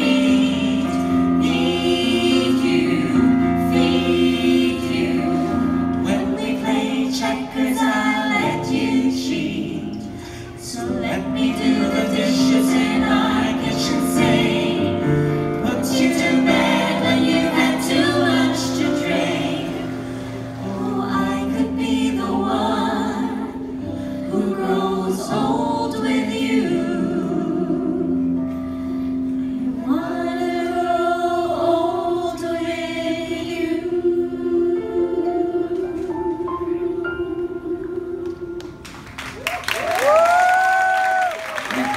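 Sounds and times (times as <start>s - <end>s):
vocal ensemble singing in harmony: 0.0s - 39.1s.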